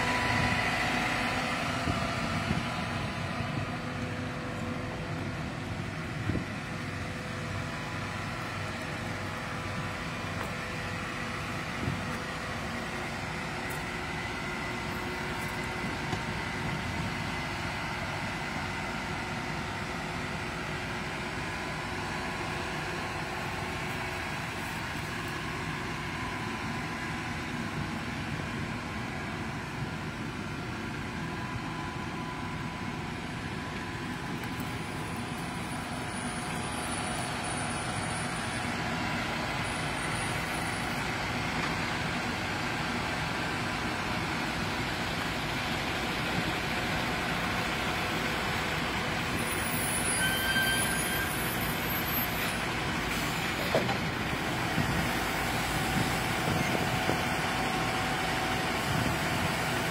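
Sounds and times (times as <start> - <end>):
excavator diesel engine and hydraulics: 0.0 - 59.9
brief high tone: 49.6 - 51.6.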